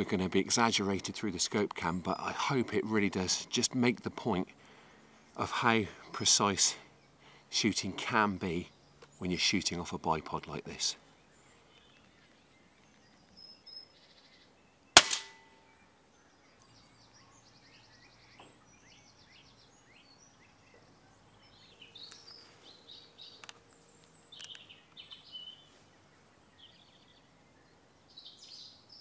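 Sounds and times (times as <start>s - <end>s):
birds singing faintly: 0.0s - 29.0s
air rifle shot: 15.0s - 15.5s.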